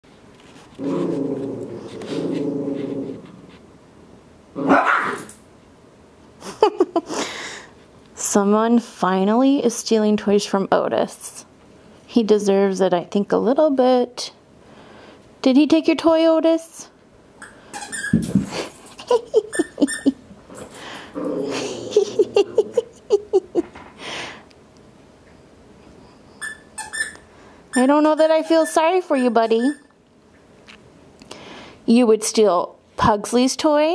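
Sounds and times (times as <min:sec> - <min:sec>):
dog growling: 0:00.8 - 0:03.5, 0:04.5 - 0:05.3, 0:20.8 - 0:23.2
dog barking: 0:04.6 - 0:05.3
dog yipping: 0:04.7 - 0:05.3, 0:26.0 - 0:30.0.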